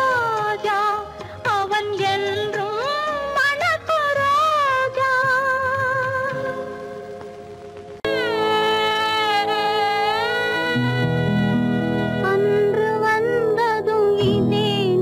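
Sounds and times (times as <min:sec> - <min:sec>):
woman singing: 0:00.0 - 0:07.0, 0:08.0 - 0:15.0.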